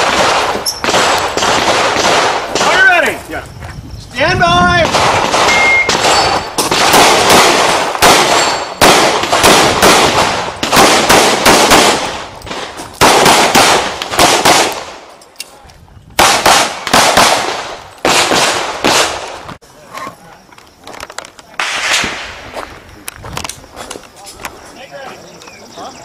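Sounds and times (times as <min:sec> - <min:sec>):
pistol shots with echo: 0:00.0 - 0:03.1, 0:04.8 - 0:15.1, 0:16.2 - 0:19.4.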